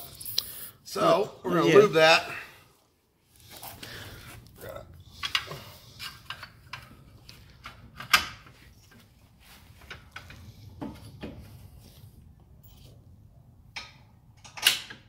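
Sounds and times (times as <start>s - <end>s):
metal clicks and clunks: 13.7s - 15.0s.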